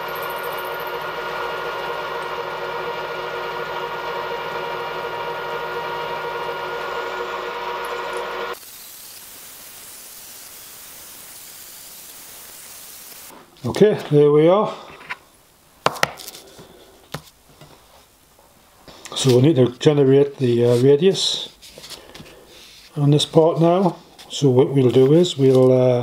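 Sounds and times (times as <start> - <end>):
end mill cutting metal: 0.0 - 8.6
milling machine spindle whine: 0.0 - 9.3
quiet steady hiss: 8.6 - 26.0.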